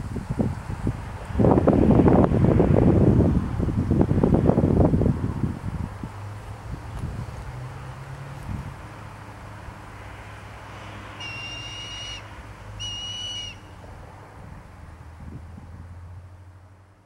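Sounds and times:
hawk whistling call: 0:11.2 - 0:13.8.

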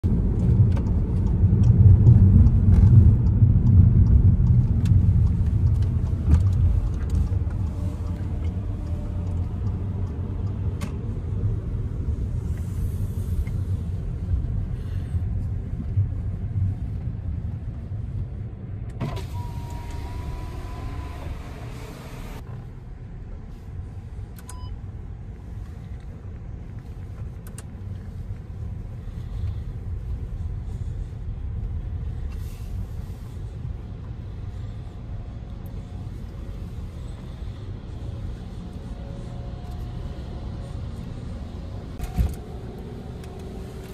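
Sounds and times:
car engine and road noise: 0:00.0 - 0:43.9.

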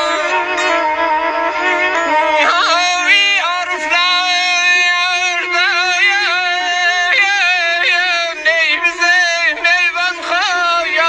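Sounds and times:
man singing ornamented phrases: 0:00.0 - 0:01.0, 0:02.3 - 0:11.0
instrument holding a drone note: 0:00.0 - 0:03.2.

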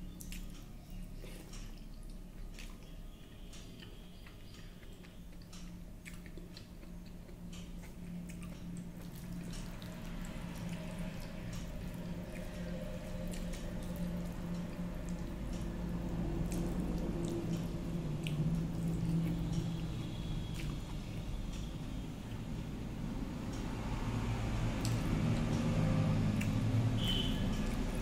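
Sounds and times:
low hum: 0:00.0 - 0:28.0
fingers squishing wet food: 0:00.1 - 0:21.7.

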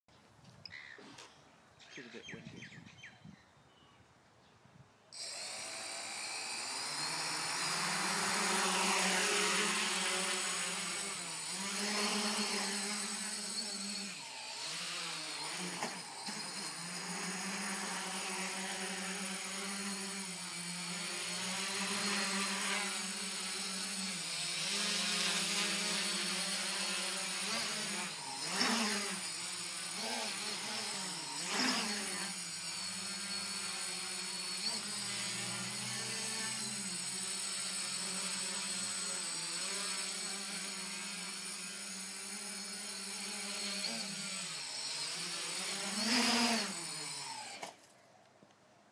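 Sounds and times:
drone motors and propellers buzzing: 0:05.2 - 0:47.8.

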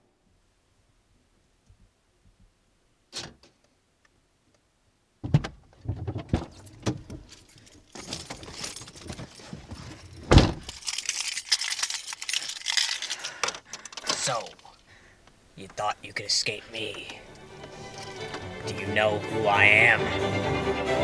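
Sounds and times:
car keys jangling: 0:06.5 - 0:14.9, 0:17.8 - 0:18.4
clothing rustling: 0:06.6 - 0:14.9
car door shutting with a thud: 0:10.3 - 0:10.6.

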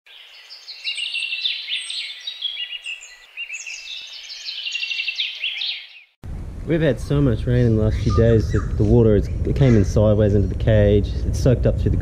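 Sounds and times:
songbirds singing: 0:00.1 - 0:06.2, 0:07.0 - 0:11.3.

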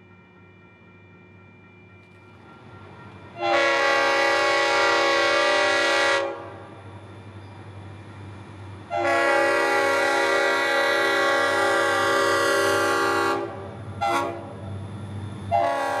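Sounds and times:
locomotive air horn blasts: 0:03.4 - 0:06.7, 0:08.9 - 0:14.6, 0:15.5 - 0:16.0.

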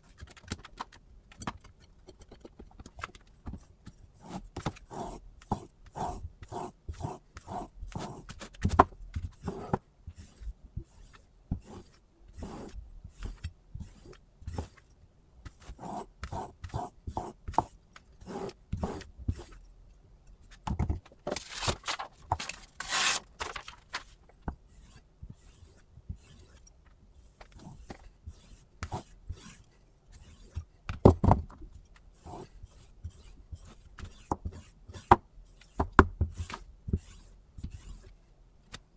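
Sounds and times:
knife scraping on whetstone: 0:09.4 - 0:14.8, 0:22.8 - 0:23.2, 0:24.7 - 0:26.6, 0:27.5 - 0:30.6.

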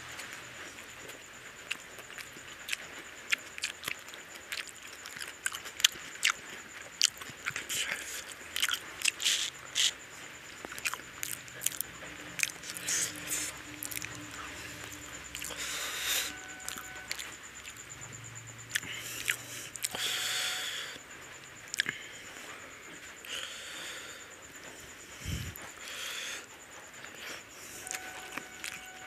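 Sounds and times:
wet chewing and lip smacks: 0:01.6 - 0:10.0, 0:10.6 - 0:15.7, 0:18.6 - 0:20.0, 0:21.7 - 0:22.0, 0:28.0 - 0:28.8
fingers squishing food: 0:07.0 - 0:10.0.

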